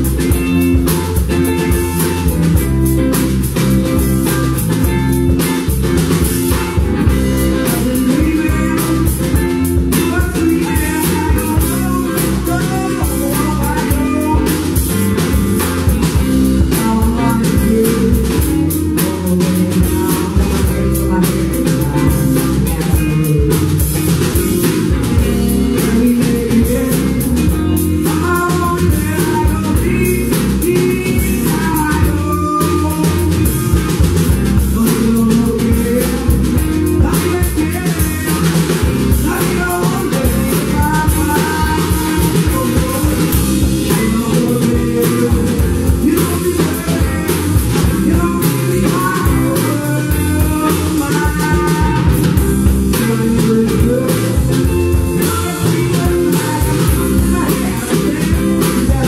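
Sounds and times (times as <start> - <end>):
drum kit: 0.0 - 59.0
electric guitars: 0.0 - 59.0
woman singing: 16.6 - 23.7, 25.2 - 33.4, 39.2 - 52.2, 52.9 - 59.0.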